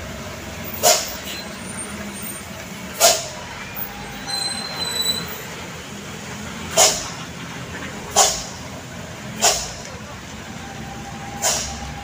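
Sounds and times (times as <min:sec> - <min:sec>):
diesel engine running: 0:00.0 - 0:12.0
truck air brakes hissing: 0:00.0 - 0:12.0.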